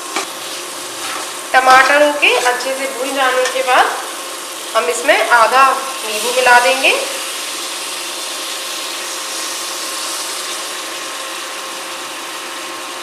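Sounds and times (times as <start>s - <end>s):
food sizzling in a pan: 0.0s - 13.0s.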